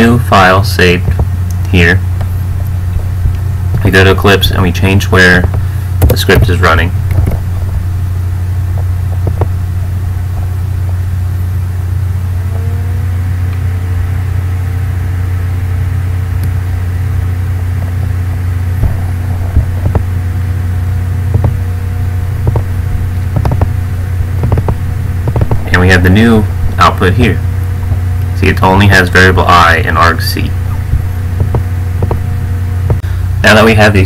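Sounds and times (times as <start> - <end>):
computer fan whine: 0.0 - 34.0
computer hum: 0.0 - 34.0.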